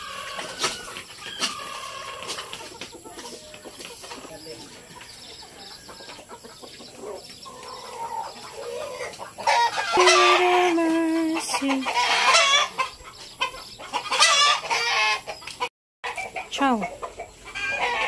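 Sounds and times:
hens clucking: 0:00.0 - 0:18.0
rooster crowing: 0:07.5 - 0:10.7, 0:17.6 - 0:18.0.

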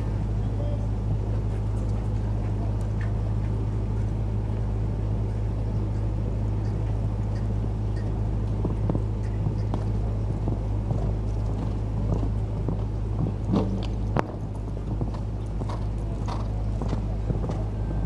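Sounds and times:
low hum: 0:00.0 - 0:18.0
horse hoofbeats on sand: 0:08.5 - 0:18.0.

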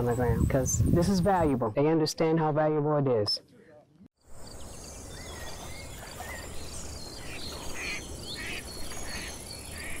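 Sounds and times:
bird chirps: 0:04.3 - 0:10.0.

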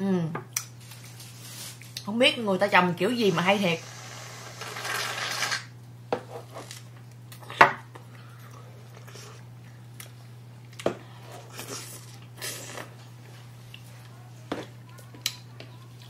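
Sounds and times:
whipped cream can hissing: 0:03.8 - 0:05.7
people chewing strawberries: 0:07.2 - 0:16.0.

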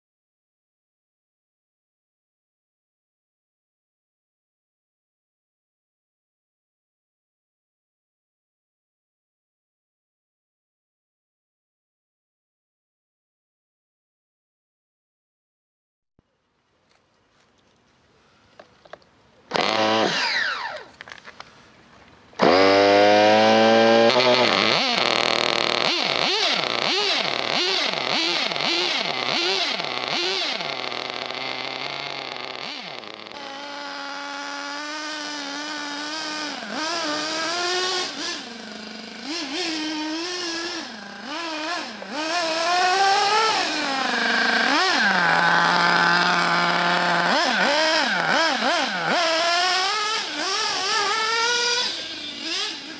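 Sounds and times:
nitro engine revving: 0:19.5 - 0:20.9, 0:22.4 - 0:52.9.

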